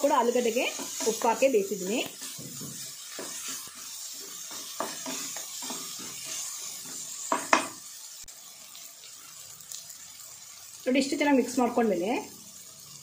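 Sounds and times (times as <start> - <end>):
vegetables sizzling in oil: 0.0 - 13.0
spatula scraping pot: 0.4 - 7.7
spatula knocking on pot: 7.3 - 7.8.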